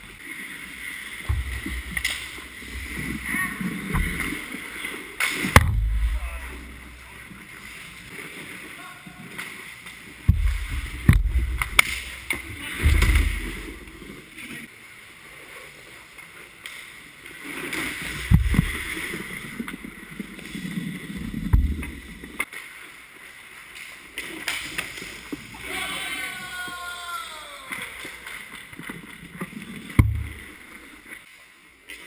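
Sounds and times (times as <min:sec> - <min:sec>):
dull low thumps: 0:01.2 - 0:04.5, 0:05.5 - 0:07.4, 0:10.2 - 0:14.2.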